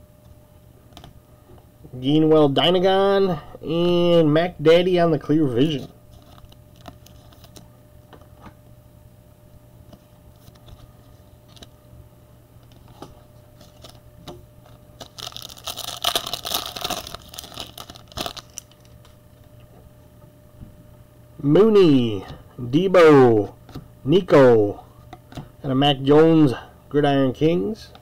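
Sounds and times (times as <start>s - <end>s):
steady low hum: 0.0s - 28.0s
cards being shuffled: 5.7s - 7.6s, 9.9s - 11.8s, 12.6s - 14.0s, 14.6s - 19.2s
wrapper crinkling and tearing: 6.1s - 7.6s, 13.6s - 14.0s, 15.0s - 19.2s.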